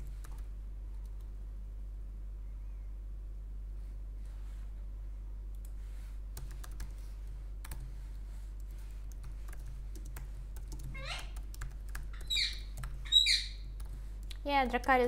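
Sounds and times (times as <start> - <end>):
keyboard typing clicks: 6.4 - 7.0, 7.6 - 7.9, 8.6 - 13.0
pet bird calling: 11.0 - 11.4, 12.1 - 13.6.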